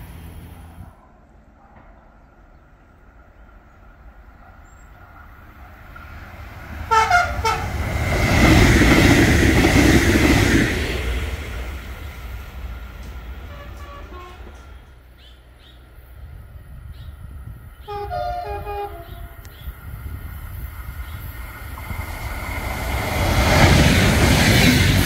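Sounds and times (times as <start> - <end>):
train wheels rushing on rails: 3.9 - 25.0
train horn blasts: 6.9 - 7.8, 13.5 - 14.9, 17.8 - 19.6.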